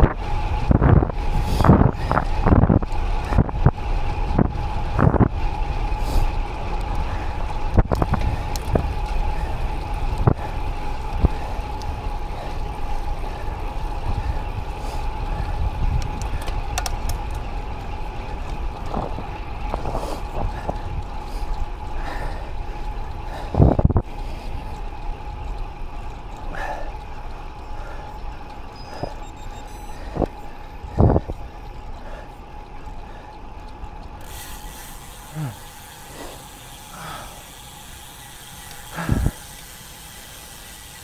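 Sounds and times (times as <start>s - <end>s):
wind rush: 0.0s - 12.5s, 18.7s - 21.2s, 23.3s - 24.1s, 30.1s - 31.4s, 39.0s - 39.4s
tyre rumble on road: 0.0s - 29.2s.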